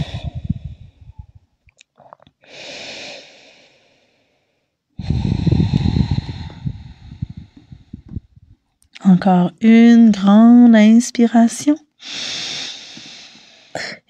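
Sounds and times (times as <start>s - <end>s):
person breathing deeply: 0.0s - 1.3s, 2.4s - 8.4s, 12.0s - 13.9s.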